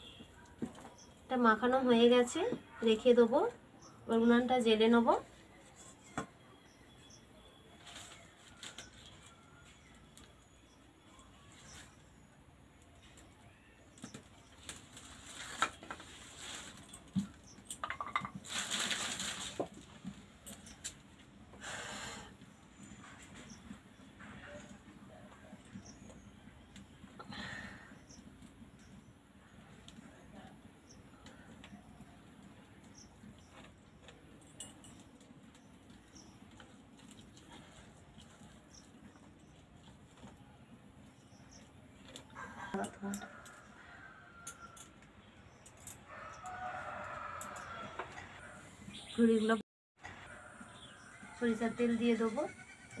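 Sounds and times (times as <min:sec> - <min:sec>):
dry leaves and twigs crackling: 0:07.7 - 0:10.4, 0:13.0 - 0:21.3.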